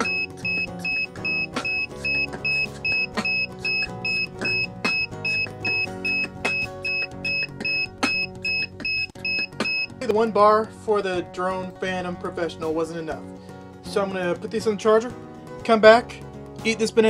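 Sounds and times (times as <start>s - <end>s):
rapid electronic beeping: 0.0s - 9.9s
background music with plucked notes: 0.0s - 17.0s.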